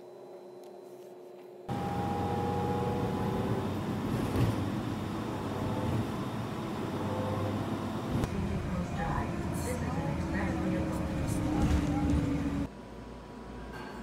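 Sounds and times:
bus engine and road noise: 0:01.7 - 0:12.7.

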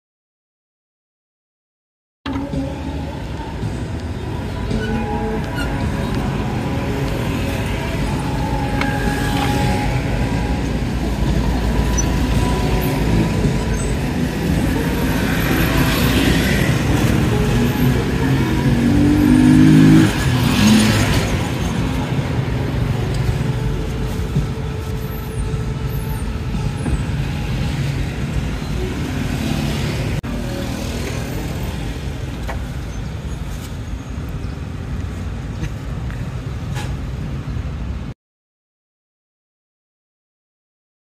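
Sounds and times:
vehicle pitched tone: 0:02.3 - 0:34.9
cars and motorbikes passing: 0:02.3 - 0:38.1.

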